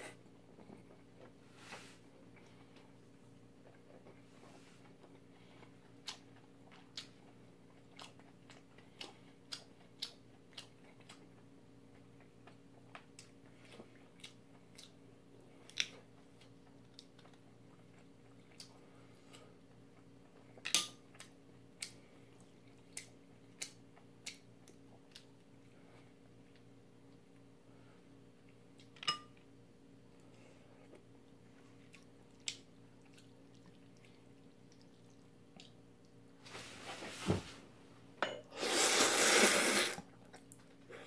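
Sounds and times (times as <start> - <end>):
faint steady hum: 0.0 - 41.0
man chewing noodles: 4.8 - 27.6, 30.3 - 36.2.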